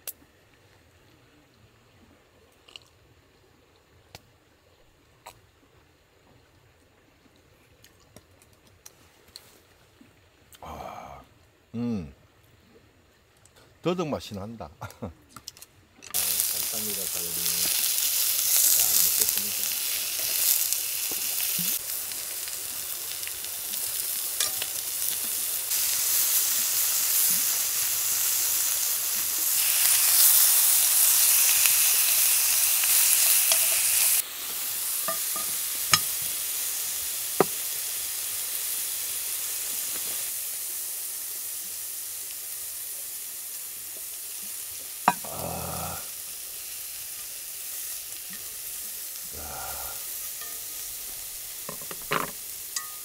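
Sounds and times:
food sizzling on grill: 16.0 - 53.0.

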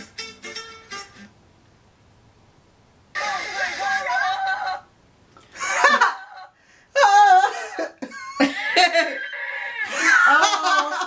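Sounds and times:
people laughing hard: 5.6 - 6.5, 7.4 - 11.0.

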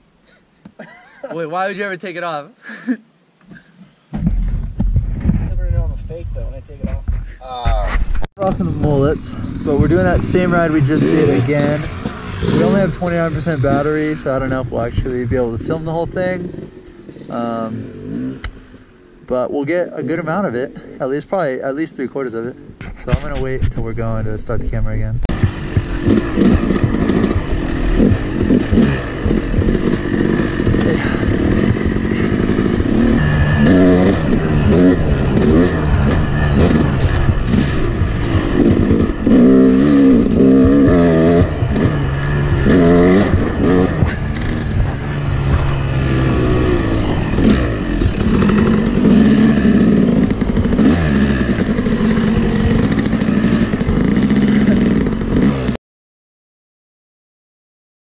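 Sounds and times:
dirt bike engine revving: 8.4 - 19.0, 25.3 - 55.8.

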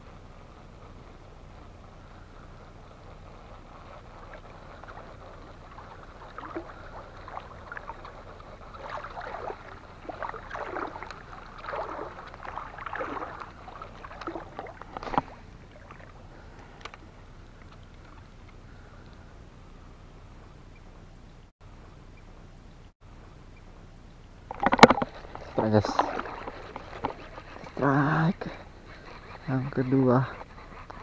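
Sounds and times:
water sloshing around wading legs: 4.0 - 18.6, 24.5 - 30.6.

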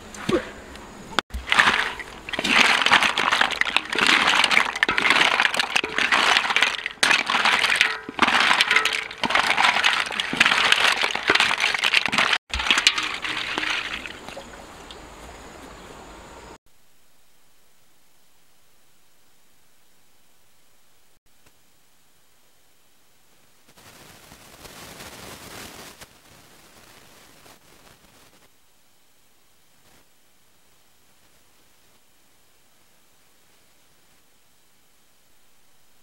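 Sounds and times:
snail shells clattering in a metal wok: 1.4 - 14.3.

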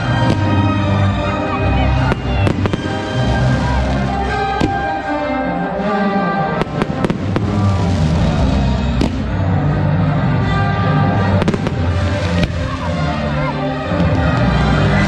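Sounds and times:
fireworks banging: 0.0 - 0.8, 2.0 - 5.1, 6.5 - 9.4, 11.4 - 13.0
music: 0.0 - 15.0.

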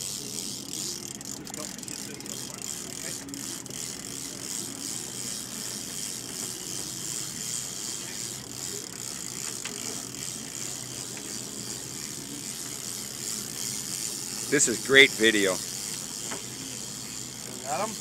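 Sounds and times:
fishing reel clicking: 0.0 - 18.0.

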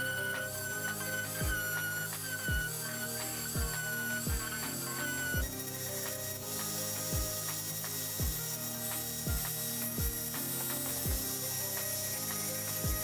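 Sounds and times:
electronic music: 0.0 - 13.0.

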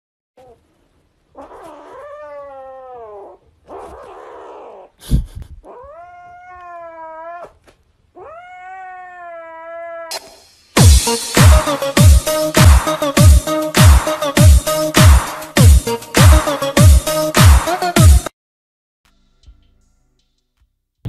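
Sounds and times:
kitten yowling: 1.4 - 4.9, 5.6 - 7.6, 8.2 - 10.2.

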